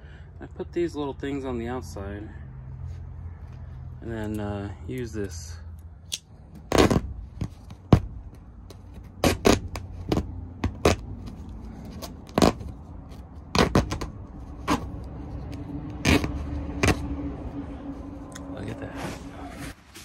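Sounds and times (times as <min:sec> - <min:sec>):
knife cutting canvas: 0:08.9 - 0:11.1, 0:13.5 - 0:17.1
low rumble: 0:14.0 - 0:19.8.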